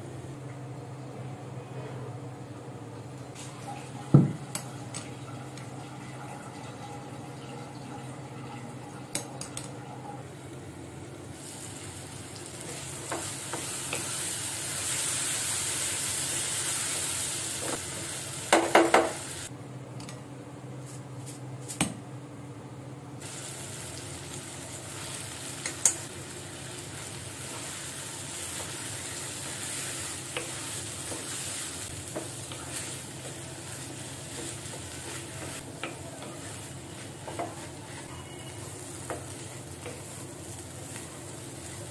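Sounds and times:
food sizzling in a frying pan: 11.2s - 19.5s, 23.2s - 41.9s.

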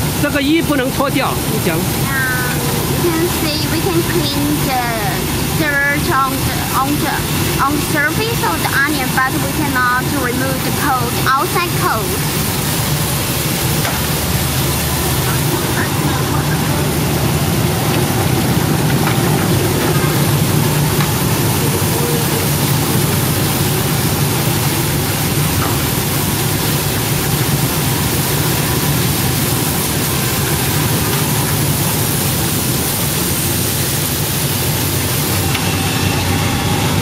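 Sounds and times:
motor hum: 0.0s - 37.0s.

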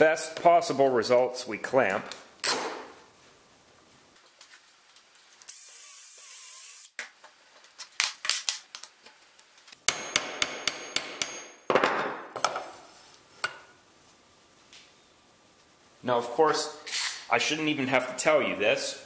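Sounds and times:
hammer tapping steel rod: 9.9s - 11.6s.

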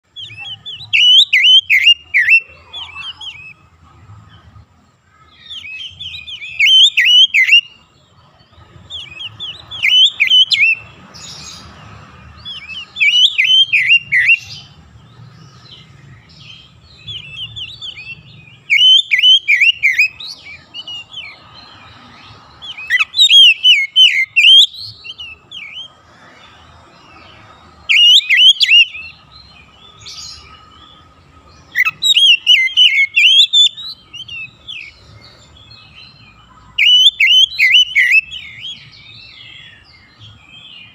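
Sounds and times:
bird singing whistled phrases: 0.1s - 3.6s, 5.2s - 7.8s, 9.0s - 11.5s, 12.4s - 14.8s, 16.2s - 21.4s, 22.6s - 25.9s, 27.9s - 29.2s, 31.7s - 35.0s, 36.8s - 40.1s.

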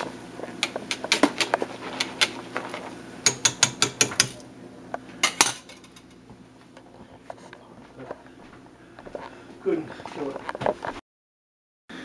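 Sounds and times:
whisk clinking on metal pot: 3.2s - 4.4s.

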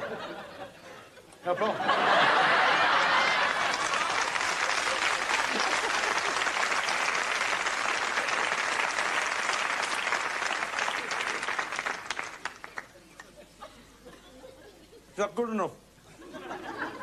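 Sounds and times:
audience applauding: 2.2s - 13.3s.

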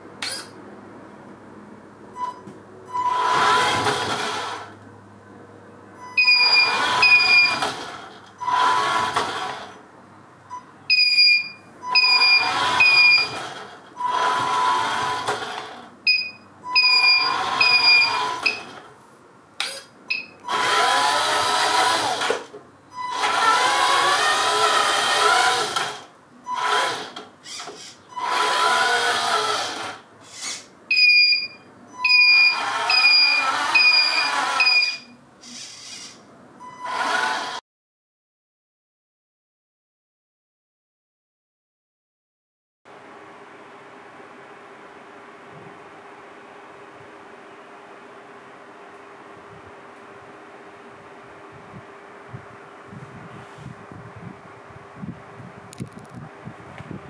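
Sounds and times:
toy truck motor whining: 2.9s - 4.7s, 6.2s - 9.8s, 11.9s - 15.9s, 16.8s - 18.7s, 19.6s - 30.7s, 31.4s - 37.6s
short high beeps: 10.5s - 13.3s, 16.1s - 18.6s, 30.9s - 35.2s.

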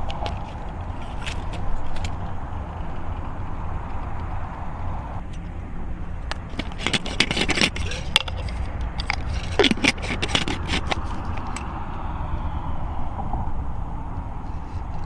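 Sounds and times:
steady low rumble: 0.0s - 15.0s
glass jar lantern handling noises: 6.5s - 11.6s.

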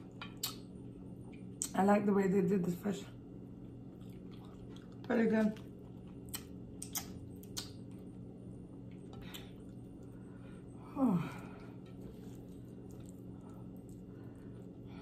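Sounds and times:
low background hum: 0.0s - 15.0s
mouth sounds eating: 3.7s - 8.0s.

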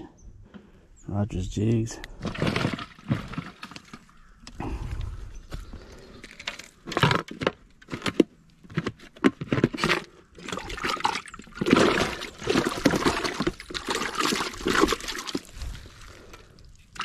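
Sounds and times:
water splashing and sloshing: 2.2s - 4.2s, 9.3s - 17.0s.

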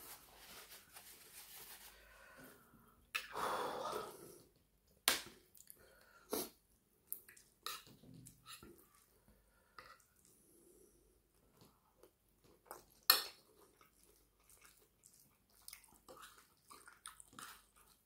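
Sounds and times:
tissue rustling: 0.0s - 2.1s.

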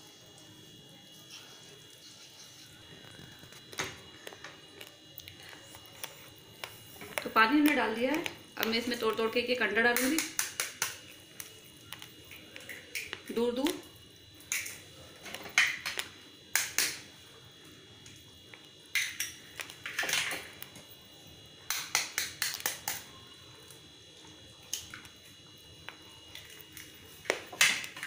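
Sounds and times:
eggshells cracking: 18.5s - 20.8s.

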